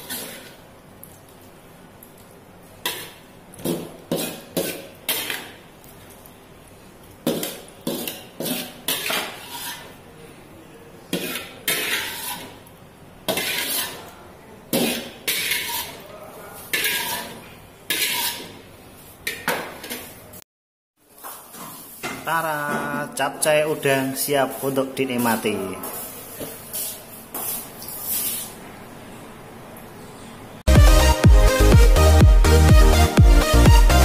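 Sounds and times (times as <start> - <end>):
metal spatula scraping a wok: 0.0 - 0.6, 2.8 - 5.6, 7.3 - 10.0, 11.1 - 12.6, 13.3 - 14.1, 14.7 - 16.0, 16.6 - 18.6, 24.5 - 28.6.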